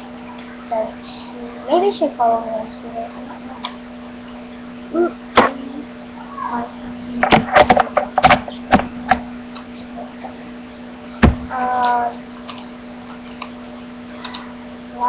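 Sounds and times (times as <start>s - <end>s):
low electrical hum: 0.0s - 15.0s
person humming: 4.9s - 6.6s
handling knocks and clicks: 7.2s - 9.2s
heavy thump: 11.2s - 11.5s.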